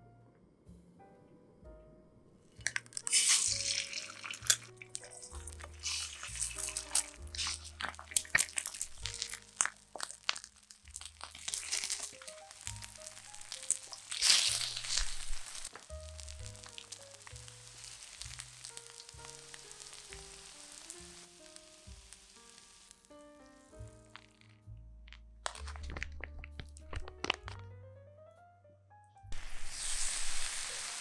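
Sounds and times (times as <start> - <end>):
background music: 0.0 - 31.0
eggs sizzling in a pan: 2.5 - 24.5, 29.3 - 31.0.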